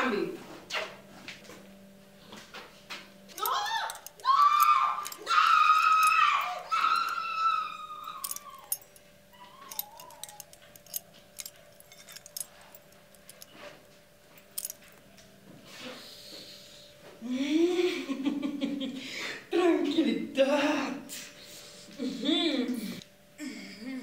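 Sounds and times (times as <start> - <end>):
faint steady hum: 0.0 - 24.0
metallic chain clinks: 3.3 - 13.7, 14.4 - 15.0.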